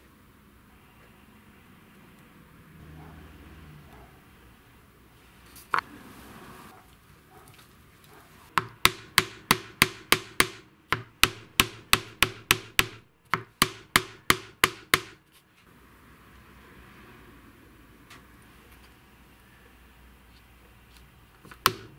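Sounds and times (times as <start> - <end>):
hammer tapping metal pins: 8.6 - 15.2.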